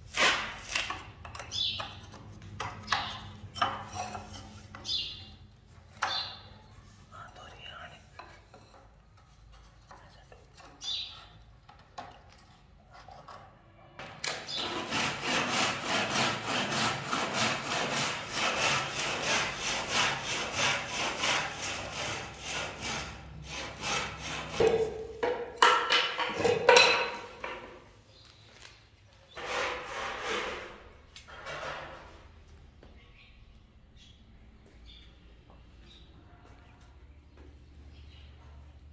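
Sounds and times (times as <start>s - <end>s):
hand tool scraping wood: 0.0s - 5.3s, 14.3s - 27.6s, 29.3s - 31.4s.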